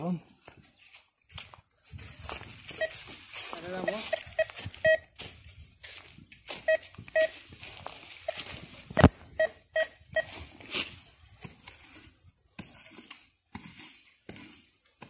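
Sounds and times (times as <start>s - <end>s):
footsteps on dry leaves: 0.3s - 14.8s
metal detector beeps: 2.7s - 5.2s, 6.6s - 7.5s, 8.2s - 10.4s.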